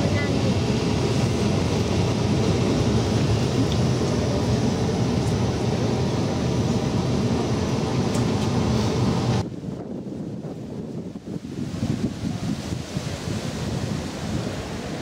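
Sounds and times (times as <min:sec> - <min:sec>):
tram running rumble: 0:00.0 - 0:15.0.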